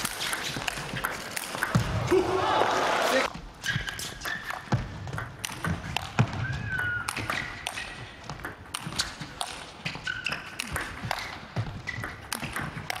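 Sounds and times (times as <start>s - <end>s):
shoes squeaking on floor: 3.3s - 5.2s, 6.2s - 13.0s.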